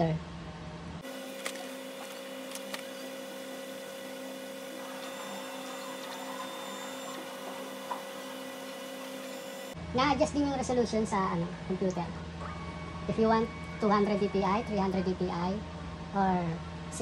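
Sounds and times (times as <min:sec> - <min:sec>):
scanner motor hum: 0:01.0 - 0:09.8.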